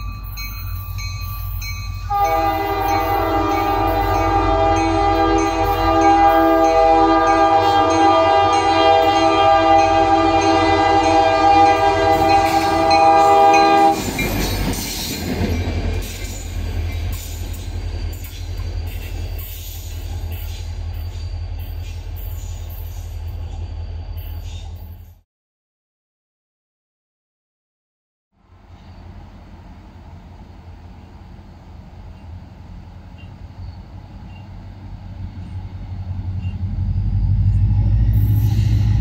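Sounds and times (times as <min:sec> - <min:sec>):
locomotive rumbling past: 0:00.0 - 0:25.2, 0:28.4 - 0:39.0
locomotive air horn blast: 0:02.1 - 0:14.0.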